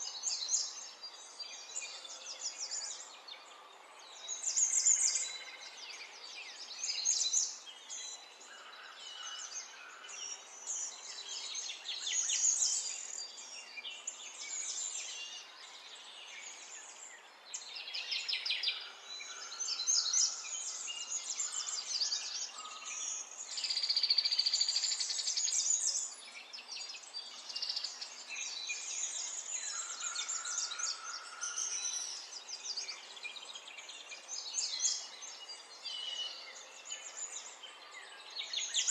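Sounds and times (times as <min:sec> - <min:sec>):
birds chirping and trilling: 0:00.0 - 0:38.9.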